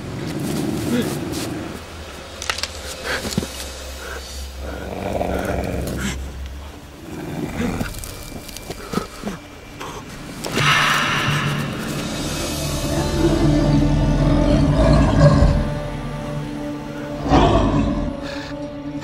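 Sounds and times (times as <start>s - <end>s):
animal growling: 4.0s - 9.4s, 10.5s - 16.2s, 17.2s - 18.4s.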